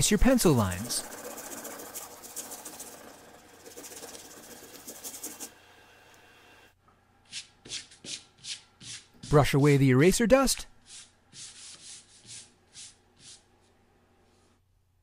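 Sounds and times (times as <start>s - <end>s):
eraser rubbing on paper: 0.0s - 5.5s, 7.3s - 9.4s, 10.8s - 13.5s
hand sweeping across paper: 10.8s - 14.6s.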